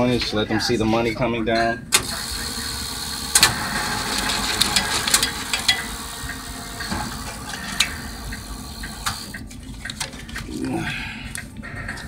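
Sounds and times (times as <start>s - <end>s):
cash dispenser whirring: 1.9s - 12.0s
sharp clicks of counting banknotes: 2.0s - 10.5s.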